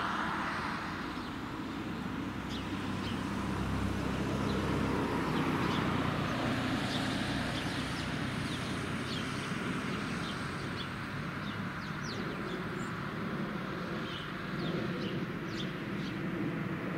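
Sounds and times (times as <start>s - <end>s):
traffic rumble: 0.0s - 16.9s
small birds chirping: 4.4s - 16.3s.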